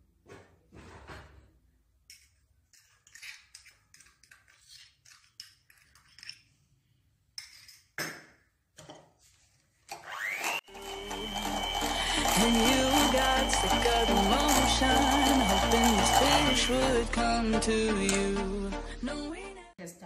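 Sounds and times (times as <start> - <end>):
electric hand mixer whine: 9.9 - 17.5
background music: 10.6 - 19.8.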